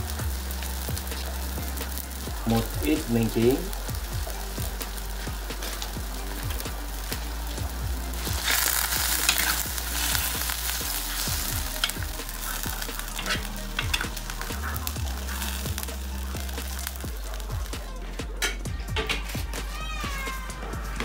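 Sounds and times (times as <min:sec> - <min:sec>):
greens sizzling in a wok: 0:00.0 - 0:20.0
metal spatula scraping a pan: 0:08.1 - 0:15.9.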